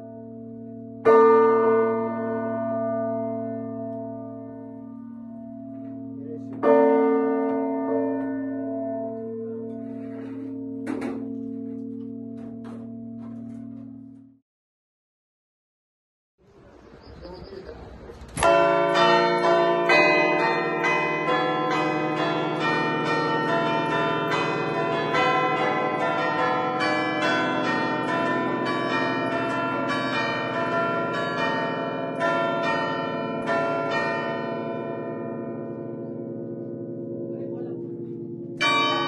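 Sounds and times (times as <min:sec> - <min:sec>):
bells chiming festive melody: 0:18.4 - 0:39.0.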